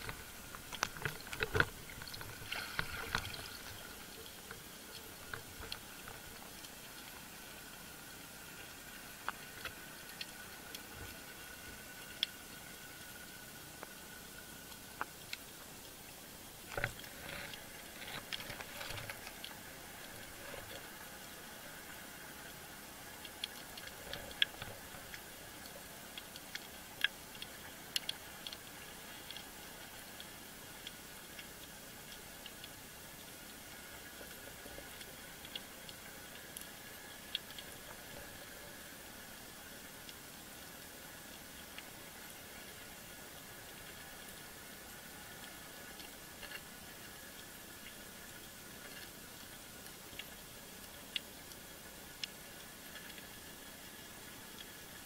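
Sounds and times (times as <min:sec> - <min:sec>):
sharp underwater clicks and knocks: 0:00.0 - 0:07.3, 0:16.7 - 0:21.0, 0:23.0 - 0:39.0
steady underwater hiss: 0:00.0 - 0:55.0.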